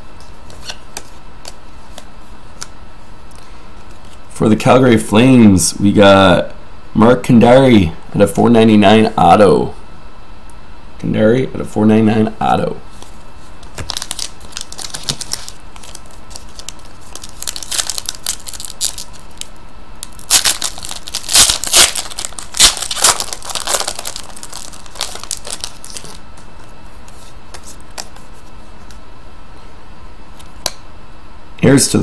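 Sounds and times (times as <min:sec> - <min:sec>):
plastic wrapper crinkling: 0:13.6 - 0:26.7.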